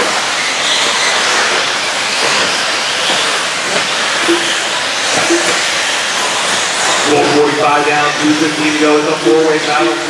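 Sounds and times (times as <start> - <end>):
rc buggies racing on dirt: 0.0 - 10.0.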